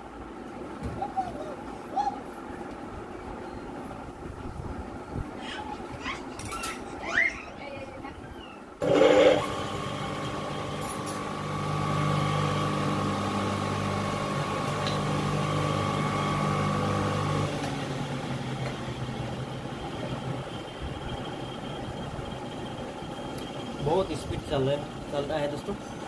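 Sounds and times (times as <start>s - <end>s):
electric motor humming and whining: 8.8s - 24.6s.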